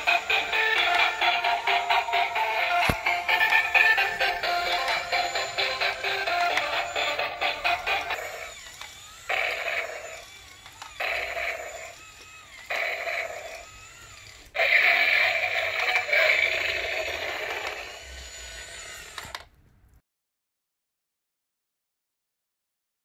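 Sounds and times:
tinny electronic toy calls: 0.0s - 10.2s.

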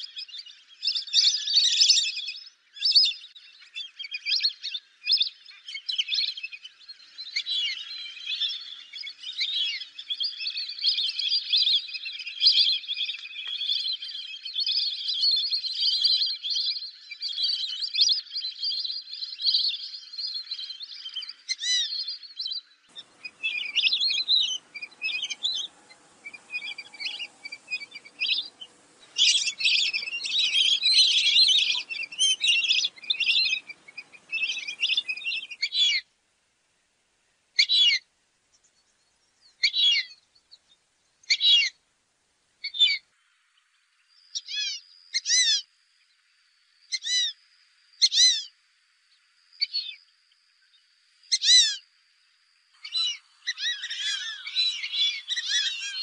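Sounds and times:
ducks whistling calls: 22.9s - 36.0s, 37.6s - 38.0s, 39.6s - 40.1s, 52.8s - 56.0s.

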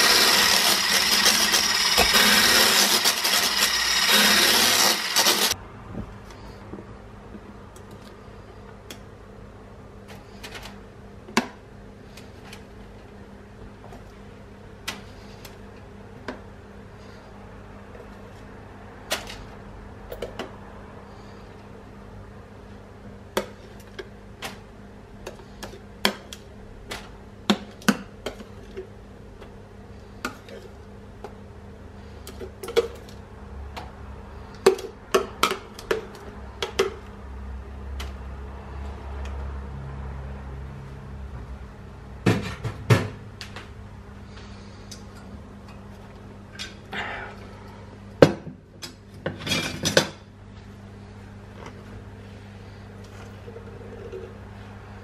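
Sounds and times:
steady low hum: 43.2s - 55.0s.

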